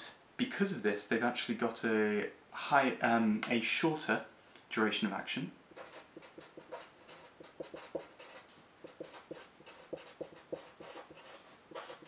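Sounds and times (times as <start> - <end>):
marker scratching on paper: 5.8 - 12.0.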